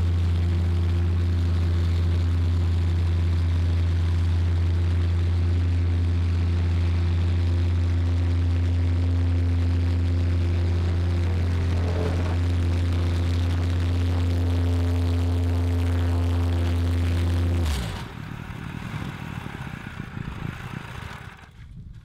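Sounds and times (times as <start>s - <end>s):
plate compactor running: 5.9s - 21.6s.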